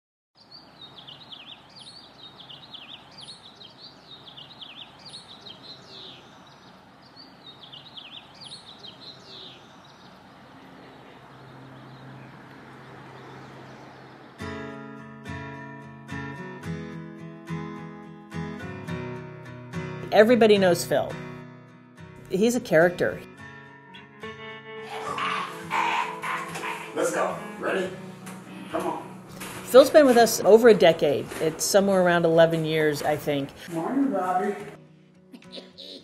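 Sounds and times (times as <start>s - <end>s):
small birds chirping: 0.4s - 14.4s, 24.9s - 27.4s
acoustic guitar strumming: 14.3s - 35.8s.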